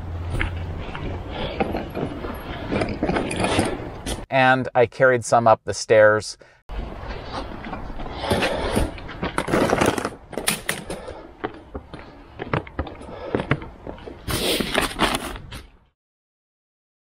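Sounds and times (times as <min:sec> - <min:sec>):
wagon cart rattling on concrete: 0:00.4 - 0:04.2.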